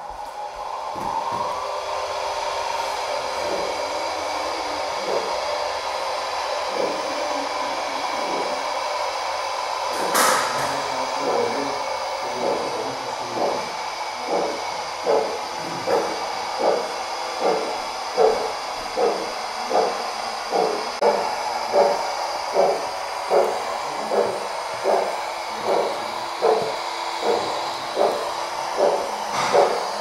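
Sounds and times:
model steam locomotive hissing: 0.0 - 30.0.

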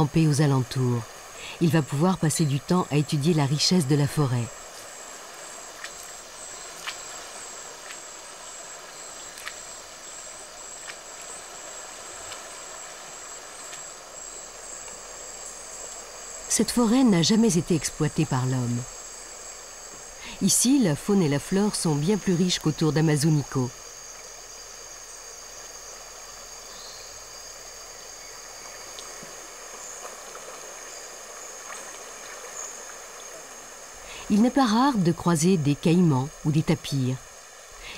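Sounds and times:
high-pitched insect drone: 0.0 - 37.9
soft background hiss: 0.0 - 37.9
faint ticks: 5.7 - 7.1, 9.2 - 9.7, 13.6 - 14.0, 28.7 - 32.7.

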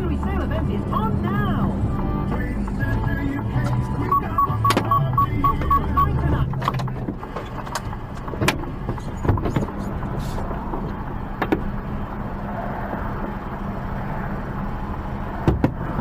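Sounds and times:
lorry engine idling: 0.0 - 12.4
sharp clicks and knocks: 6.4 - 9.8.

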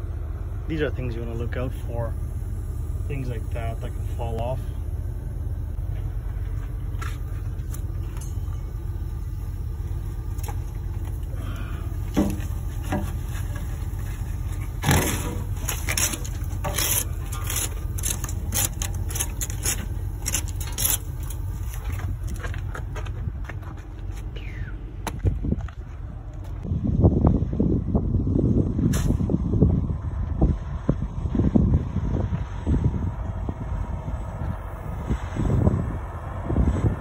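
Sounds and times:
diesel engine idling: 0.0 - 37.0
bark scraping off steel deck: 14.7 - 21.1.

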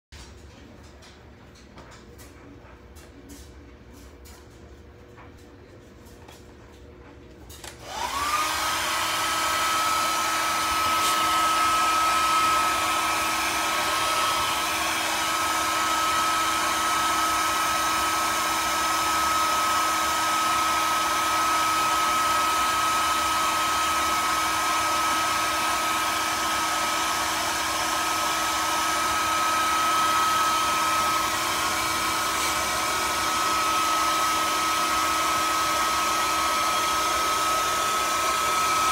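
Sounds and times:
electric blower motor whine: 7.6 - 38.9
loud whir of air: 7.7 - 19.2.

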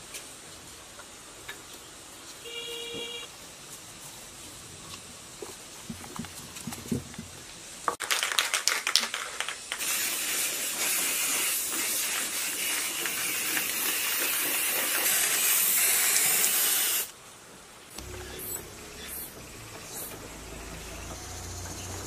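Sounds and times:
spray can rattling: 8.0 - 17.1
aerosol spray hissing: 9.8 - 17.1.

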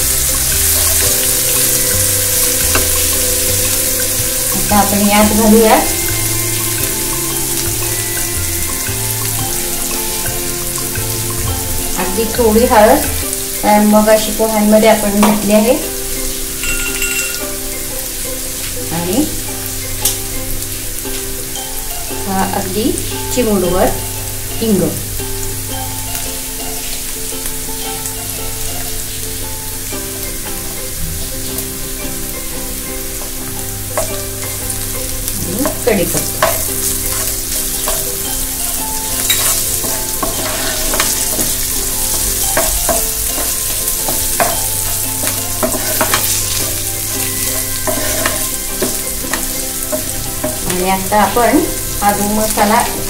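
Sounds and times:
vegetables sizzling in oil: 0.0 - 53.0
wooden spatula scraping pan: 35.3 - 53.0.

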